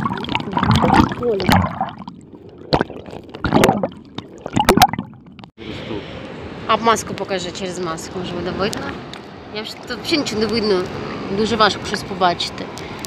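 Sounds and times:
seawater splashing and sloshing: 0.0 - 5.5
sharp splashes: 0.0 - 5.5.

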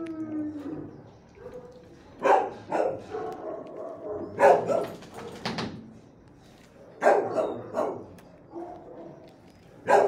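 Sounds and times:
dogs barking: 0.6 - 5.4, 6.8 - 10.0.

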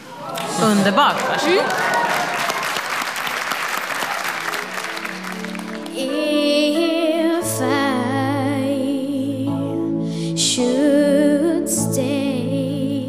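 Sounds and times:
audience applauding: 0.0 - 6.5
slow ballad backing music: 4.6 - 13.0
boy singing: 10.4 - 13.0.

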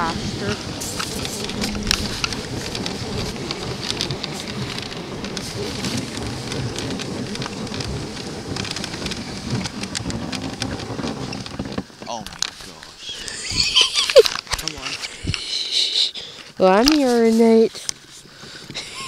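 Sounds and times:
sled runners scraping snow: 0.0 - 19.0
sharp clicks and crunches: 0.8 - 15.4.

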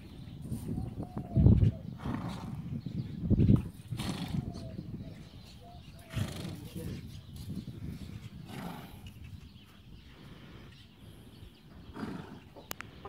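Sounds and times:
horse blowing through nostrils: 2.0 - 2.6, 3.8 - 4.5, 6.1 - 6.6, 8.4 - 9.1, 11.9 - 12.6.

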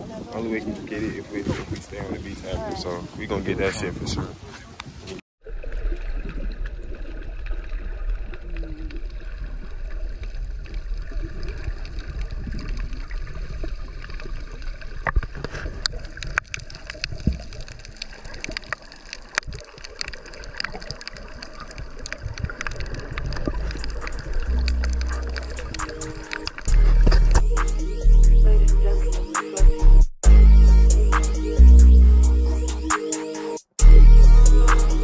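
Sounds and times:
muffled underwater wash: 5.4 - 27.6
sharp clicks and pops: 15.0 - 27.8.

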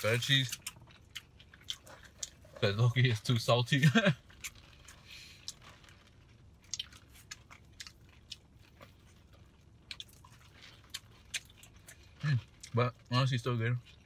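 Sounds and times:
person chewing food: 0.5 - 2.6, 4.2 - 12.8.

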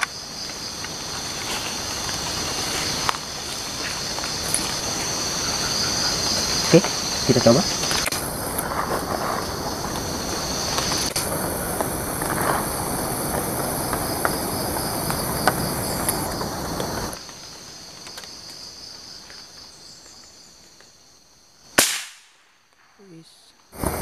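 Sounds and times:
insects buzzing: 0.0 - 24.0
rifle shot: 21.8 - 23.0.

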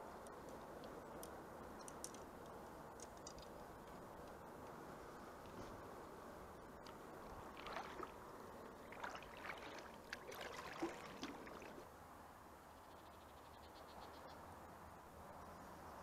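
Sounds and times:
faint steady background: 0.0 - 16.0
paddle splashing in water: 7.3 - 8.2, 8.8 - 11.8.

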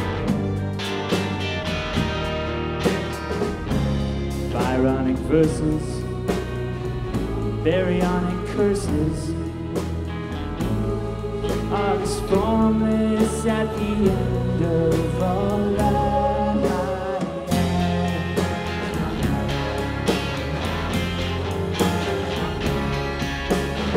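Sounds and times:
drums: 0.0 - 23.9
electric guitar: 0.0 - 23.9
choir singing: 3.3 - 23.9
man singing: 4.5 - 6.4, 7.3 - 9.5, 11.6 - 18.6.

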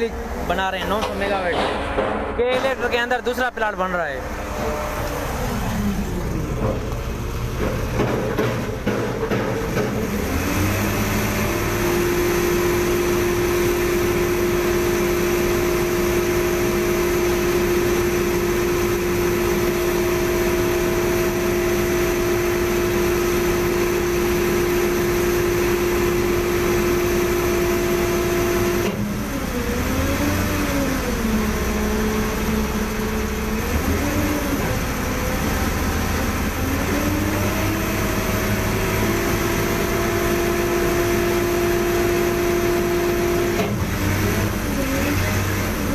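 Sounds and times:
crane engine running: 0.0 - 45.9.

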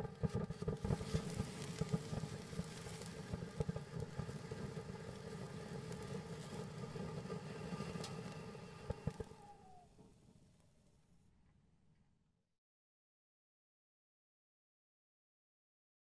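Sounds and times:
sharp firework crack: 0.0 - 9.5
firework sparks hissing and crackling: 0.0 - 10.1.

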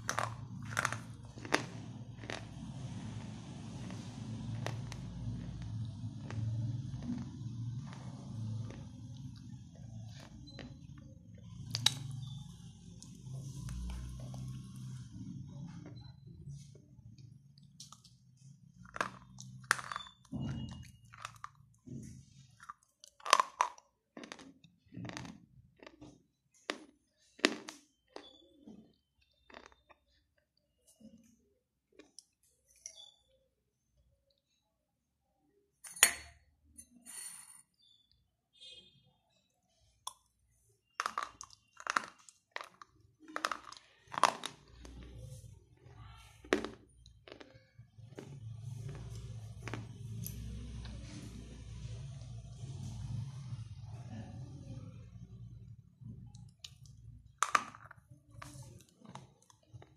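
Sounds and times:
gritty chewing: 0.0 - 12.4, 18.8 - 30.5, 40.9 - 51.0, 56.3 - 59.9
sharp crunches of biting: 22.7 - 26.0.

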